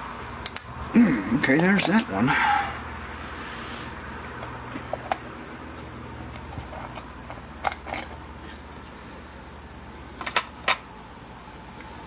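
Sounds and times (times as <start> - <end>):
small metal parts clinking: 1.5 - 2.2, 6.3 - 8.2, 8.8 - 9.1.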